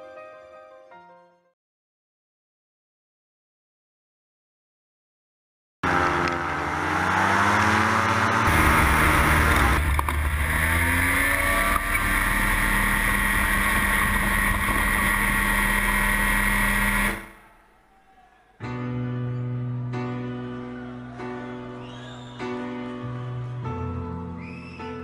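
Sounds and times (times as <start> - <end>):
paramotor engine and propeller: 5.8 - 17.3.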